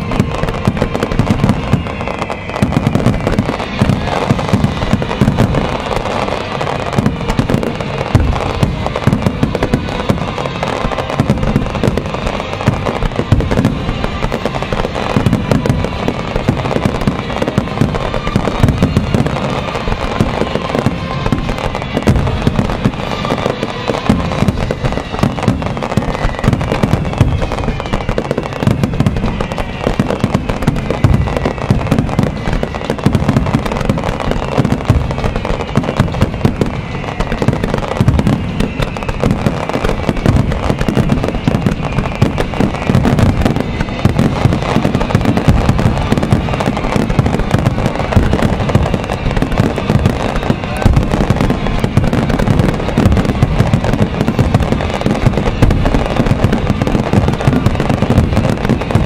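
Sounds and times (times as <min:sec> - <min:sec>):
fireworks exploding rapidly: 0:00.0 - 0:59.0.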